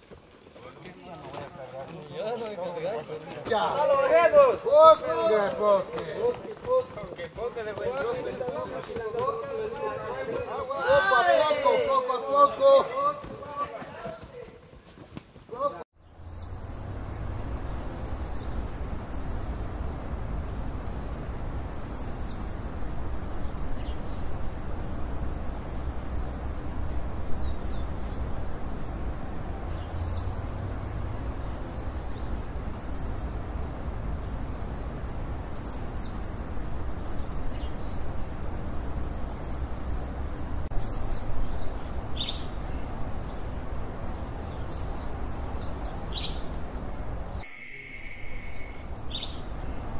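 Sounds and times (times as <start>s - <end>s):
low background noise: 0.0s - 49.9s
bird chirps and whistles: 47.4s - 48.8s
short high bird call: 47.4s - 48.8s.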